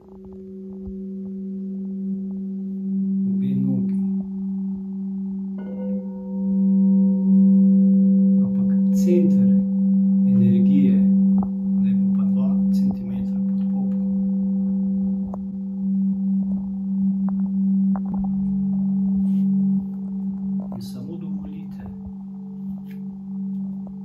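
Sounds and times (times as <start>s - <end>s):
singing bowl humming: 0.0s - 24.0s.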